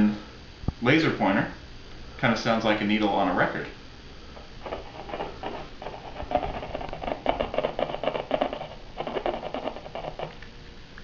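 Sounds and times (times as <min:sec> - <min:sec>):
crackle and scratching from speaker: 0:04.3 - 0:10.5.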